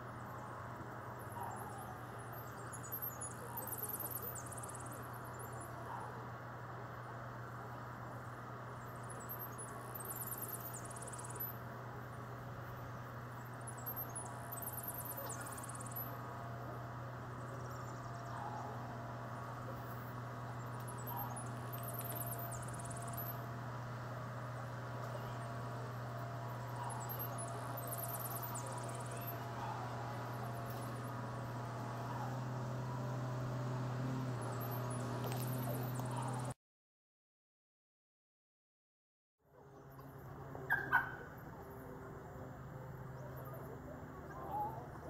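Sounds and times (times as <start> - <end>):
steady low hum: 0.0 - 36.6
high-pitched chirping trill: 13.6 - 16.2, 26.8 - 29.6.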